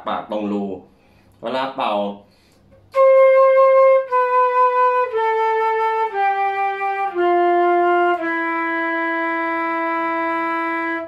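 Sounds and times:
flute playing a descending scale: 0:02.9 - 0:11.0.

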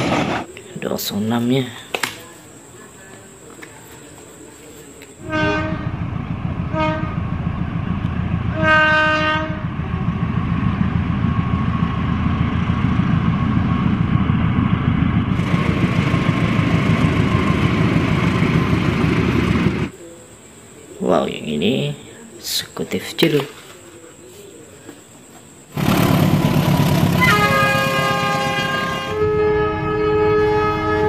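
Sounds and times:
freight train rumbling past: 0:00.0 - 0:01.2, 0:05.2 - 0:20.0, 0:25.7 - 0:31.0
locomotive horn blasts: 0:05.2 - 0:06.0, 0:06.7 - 0:07.2, 0:08.5 - 0:09.7, 0:27.0 - 0:31.0.

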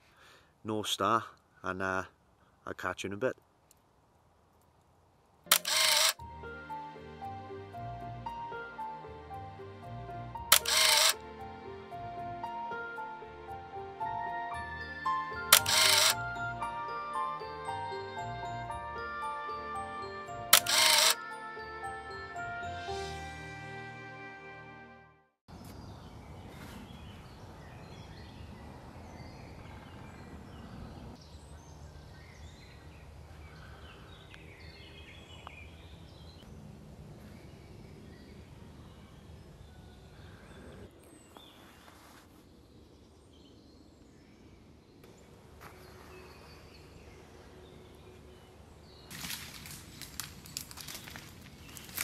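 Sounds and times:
footsteps in leaf litter: 0:45.5 - 0:47.2, 0:49.1 - 0:52.0.

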